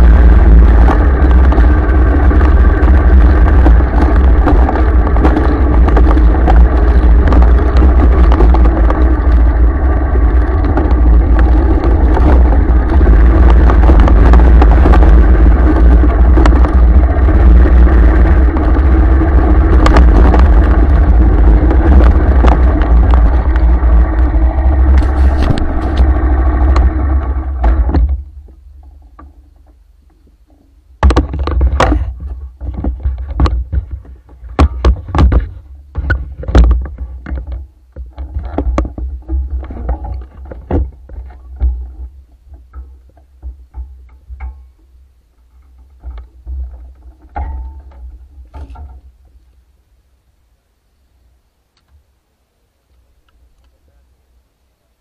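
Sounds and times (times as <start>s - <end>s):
vehicle engine running: 0.0s - 37.2s
wind rumble on microphone: 0.0s - 49.4s.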